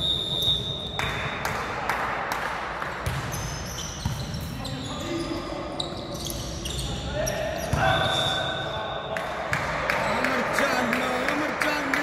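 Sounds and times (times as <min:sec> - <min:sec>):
volleyballs hitting hardwood court: 0:01.0 - 0:04.4, 0:09.2 - 0:10.1.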